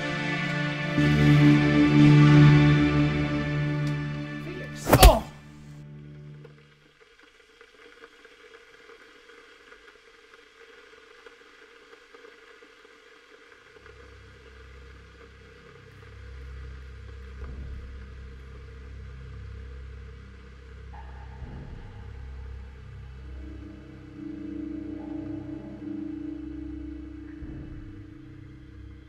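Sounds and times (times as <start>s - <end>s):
deep bass drone notes: 17.0s - 29.0s.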